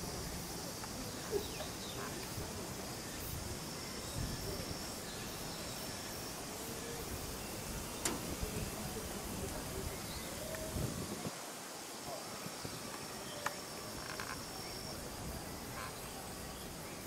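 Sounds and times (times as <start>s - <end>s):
faint distant voices: 0.0s - 17.0s
high insect-like whine: 0.0s - 17.0s
wind hissing: 0.0s - 17.0s
sharp click: 8.0s - 8.4s.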